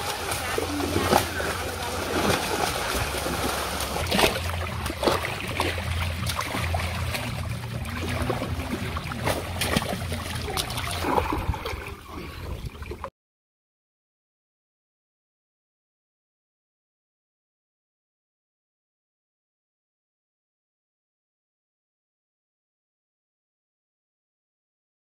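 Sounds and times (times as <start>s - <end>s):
outboard motor running: 0.0s - 12.0s
water rushing past boat: 0.0s - 13.1s
fish knocking and splashing: 1.0s - 11.5s.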